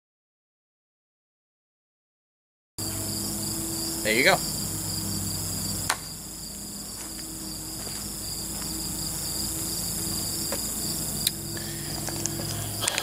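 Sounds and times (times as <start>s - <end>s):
crickets chirping: 2.8s - 13.0s
low steady hum: 2.8s - 13.0s.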